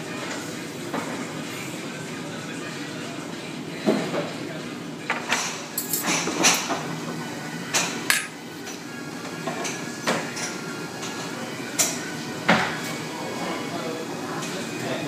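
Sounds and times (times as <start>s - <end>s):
restaurant background music: 0.0s - 15.0s
metal tongs clinking on dishes: 5.2s - 6.2s, 7.7s - 8.4s.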